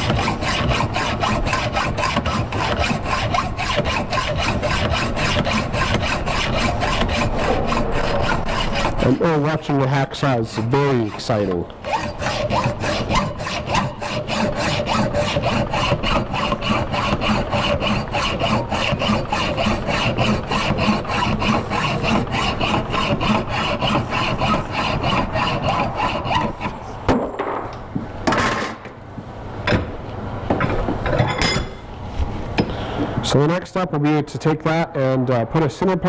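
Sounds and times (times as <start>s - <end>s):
hacksaw cutting metal: 0.0s - 26.9s.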